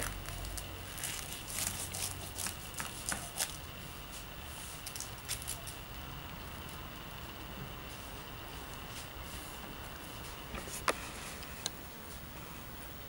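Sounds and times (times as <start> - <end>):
knife cutting crunchy crust: 0.0 - 3.6.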